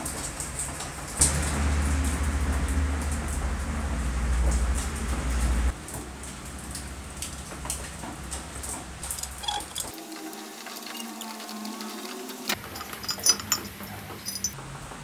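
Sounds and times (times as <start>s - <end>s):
low rumble: 1.2s - 7.5s.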